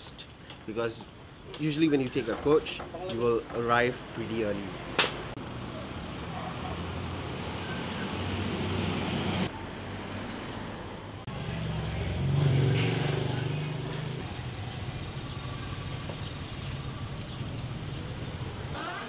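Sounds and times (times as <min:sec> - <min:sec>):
street traffic: 0:00.0 - 0:19.0
passing vehicle engine: 0:04.7 - 0:19.0.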